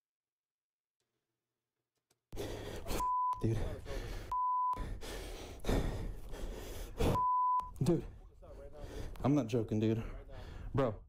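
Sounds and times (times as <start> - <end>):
censor bleep tone: 7.2 - 7.7.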